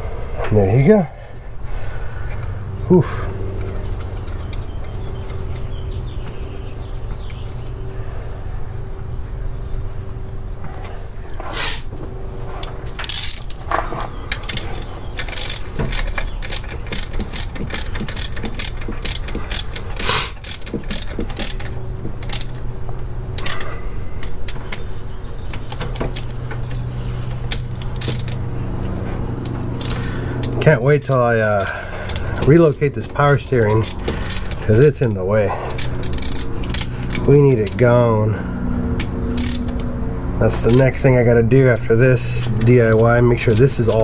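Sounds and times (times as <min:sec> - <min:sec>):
steady low hum: 0:00.0 - 0:44.0
ratchet wrench clicking: 0:13.0 - 0:13.6, 0:15.2 - 0:22.6, 0:25.5 - 0:28.4, 0:29.4 - 0:34.8, 0:35.7 - 0:37.8, 0:38.9 - 0:39.9, 0:42.5 - 0:44.0
metal tools knocking: 0:13.0 - 0:22.6.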